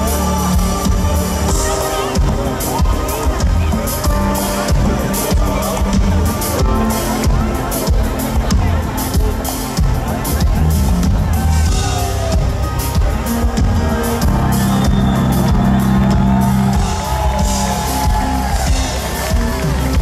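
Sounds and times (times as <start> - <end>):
people singing: 0.0 - 4.3
pop-rock band playing: 0.0 - 20.0.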